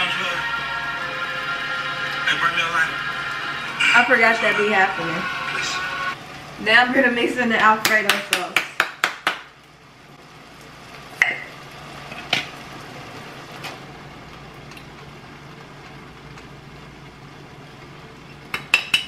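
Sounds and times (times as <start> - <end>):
pots bubbling on stove: 0.0 - 19.0.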